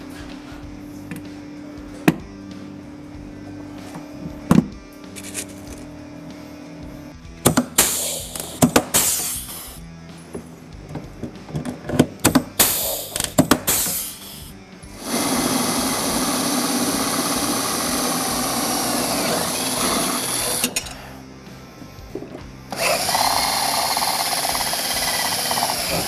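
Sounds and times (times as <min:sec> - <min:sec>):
rivet gun hissing and snapping: 0:07.6 - 0:09.8, 0:12.6 - 0:14.5
power drill boring through metal: 0:12.6 - 0:21.0, 0:22.7 - 0:26.0.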